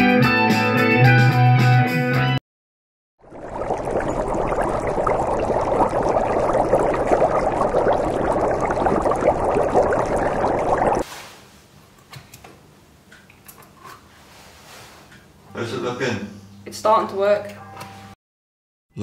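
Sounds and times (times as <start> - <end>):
liquid bubbling and gurgling: 3.2 - 11.1.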